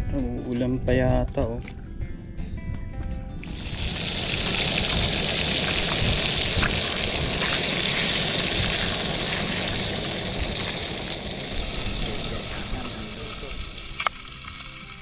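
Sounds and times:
steady hiss: 3.4s - 15.0s.

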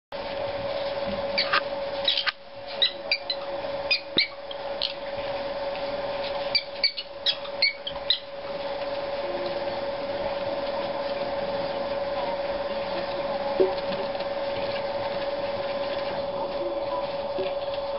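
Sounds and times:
steady mechanical hum: 0.1s - 17.9s
prairie dogs squeaking: 1.4s - 5.0s, 6.4s - 8.4s.

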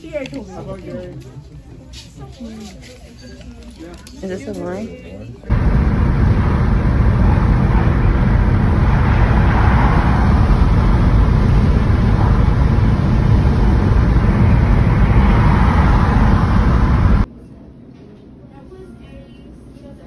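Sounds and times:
car road and wind noise: 5.5s - 17.3s.

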